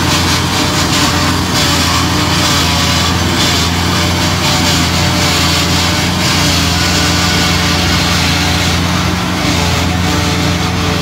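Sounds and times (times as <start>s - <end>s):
harvester engine and machinery drone: 0.0s - 11.0s.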